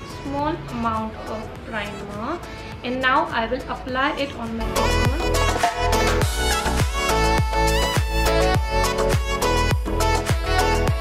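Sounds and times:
background music with steady beat: 0:00.0 - 0:11.0.

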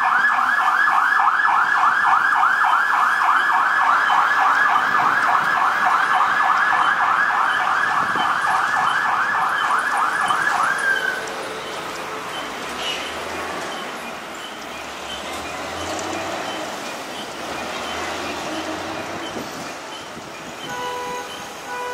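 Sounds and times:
fire truck siren yelping: 0:00.0 - 0:12.7
low rumble of traffic: 0:00.0 - 0:21.9.

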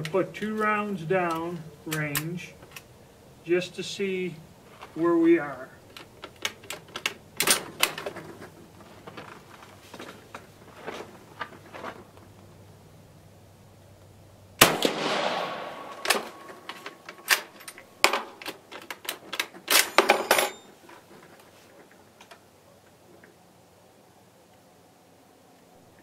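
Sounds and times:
rifle shot with echo: 0:14.6 - 0:16.7.

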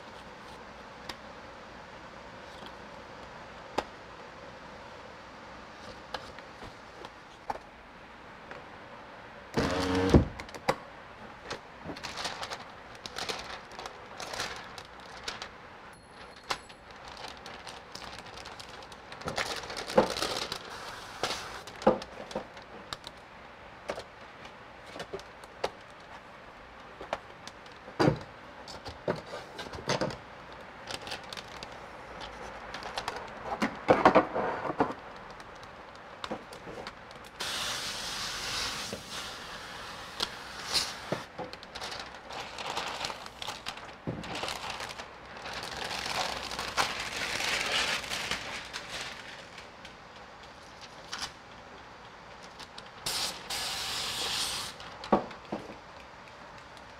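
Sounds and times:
plastic film crackling: 0:09.6 - 0:23.2, 0:23.8 - 0:28.0, 0:29.7 - 0:33.9, 0:34.8 - 0:56.9
plastic film snapping: 0:11.4 - 0:15.6, 0:16.8 - 0:23.2, 0:29.7 - 0:33.8, 0:40.2 - 0:53.6
steady hiss: 0:37.3 - 0:42.1, 0:53.0 - 0:55.1.

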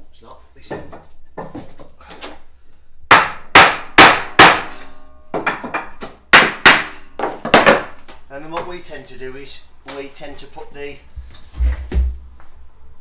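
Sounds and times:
hammer striking wood: 0:03.1 - 0:07.9.

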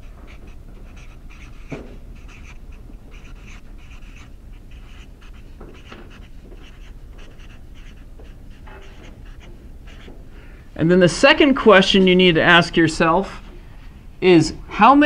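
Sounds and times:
marker scratching on paper: 0:00.0 - 0:10.3, 0:10.9 - 0:13.4.

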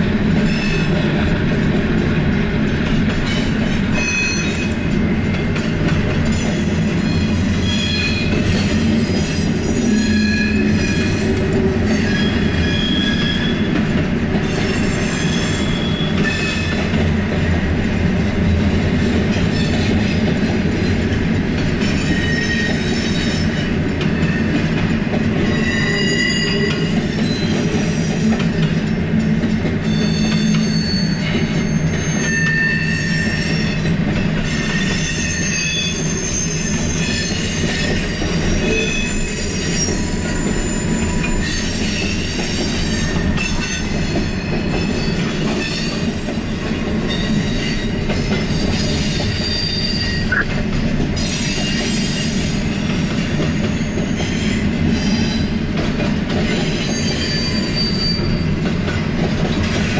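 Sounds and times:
train wheels rumbling on rail: 0:00.0 - 0:59.9
high-pitched wheel squeals: 0:06.6 - 0:08.4, 0:11.9 - 0:13.7, 0:25.5 - 0:27.6, 0:29.9 - 0:33.9, 0:34.5 - 0:37.5, 0:38.7 - 0:42.1, 0:56.7 - 0:58.5.

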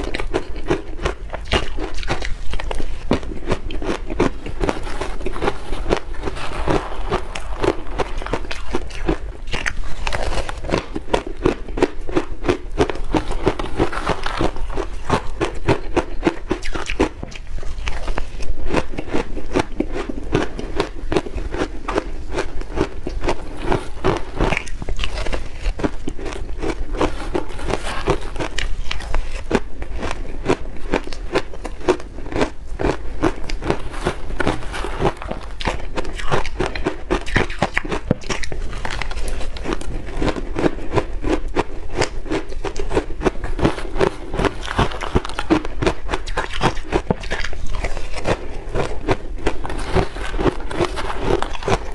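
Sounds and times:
crunching and chewing ice: 0:00.0 - 0:51.9.

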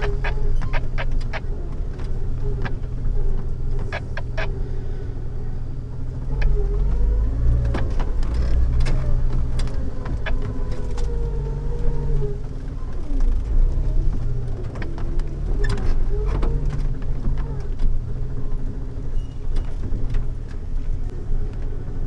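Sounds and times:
faint wavering squeak: 0:00.0 - 0:01.7, 0:19.1 - 0:19.6
engine rumble: 0:00.0 - 0:22.0
knocks and rattles: 0:06.0 - 0:21.8.

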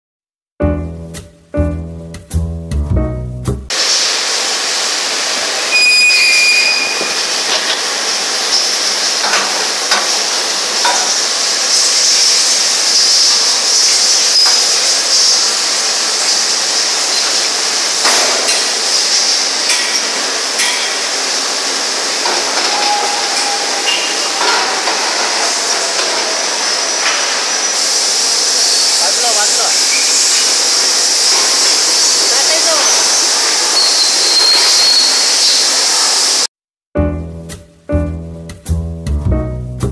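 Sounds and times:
hissing machine noise: 0:03.7 - 0:36.5
short high whine: 0:05.4 - 0:07.8
metal clanks and knocks: 0:09.2 - 0:10.2, 0:22.2 - 0:26.4.

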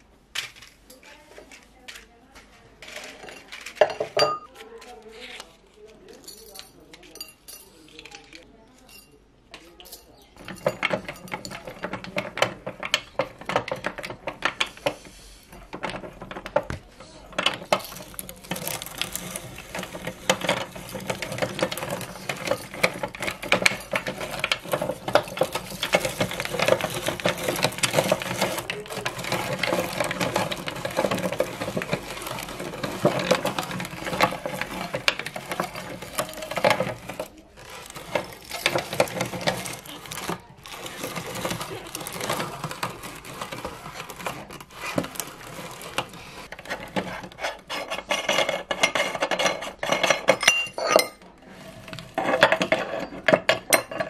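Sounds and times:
meat grinder crunching matchsticks: 0:17.4 - 0:47.4.

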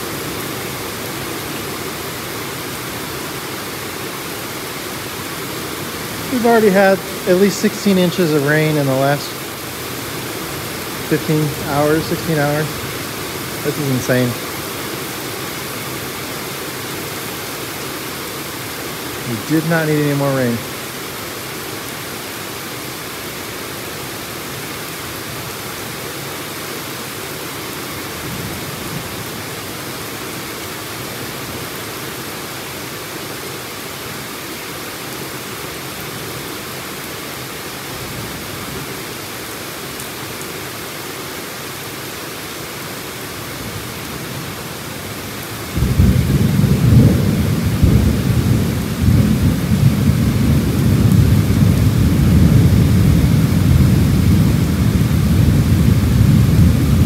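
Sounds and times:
heavy rain: 0:00.0 - 0:57.0
thunder rumbling: 0:45.7 - 0:57.0.

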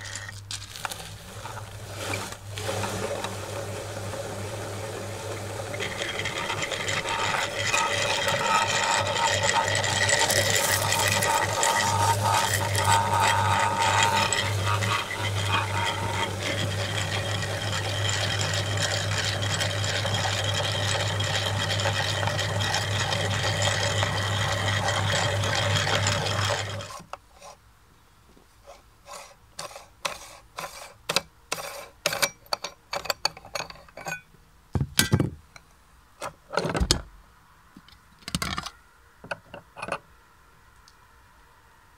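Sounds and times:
meat grinder humming: 0:00.8 - 0:27.0.

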